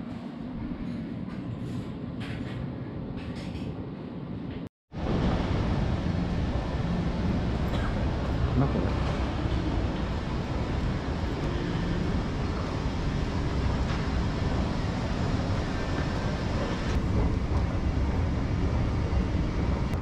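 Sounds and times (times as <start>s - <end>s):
low rumbling building interior noise: 0.0s - 20.0s.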